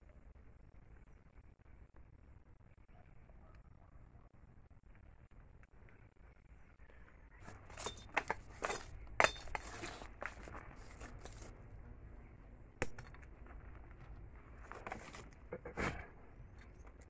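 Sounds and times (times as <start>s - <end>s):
sticks and scrap metal clinking: 7.4s - 11.8s, 12.8s - 17.0s.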